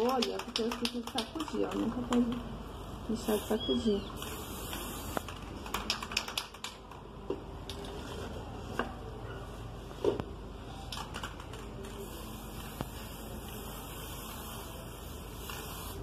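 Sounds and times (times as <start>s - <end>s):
aerosol spray can hissing: 3.1s - 5.4s, 12.0s - 16.0s.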